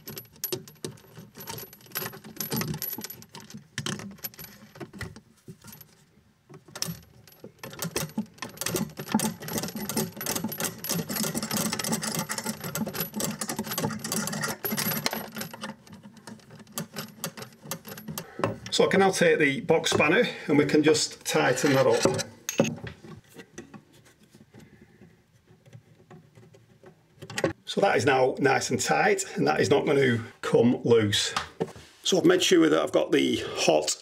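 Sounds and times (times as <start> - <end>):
small metal parts clinking: 0.0 - 18.8.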